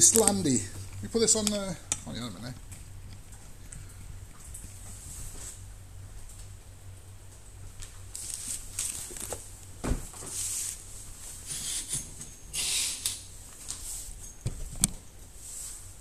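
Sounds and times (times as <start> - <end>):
pages and covers rustling: 8.1 - 9.5.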